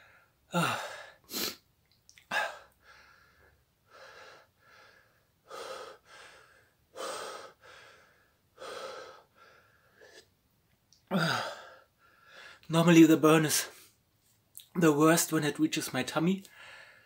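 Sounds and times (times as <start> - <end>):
man panting through open mouth: 2.2 - 10.2.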